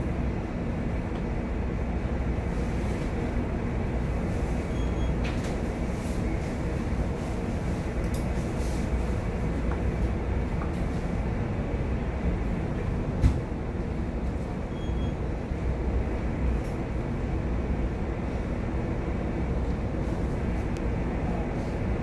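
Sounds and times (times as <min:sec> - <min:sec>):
ship low rumble: 0:00.0 - 0:22.0.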